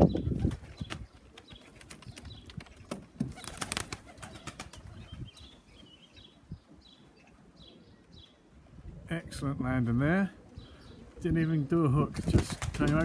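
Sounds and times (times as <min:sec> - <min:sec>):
pigeon wings flapping and clapping: 0:00.0 - 0:04.8, 0:12.2 - 0:13.0.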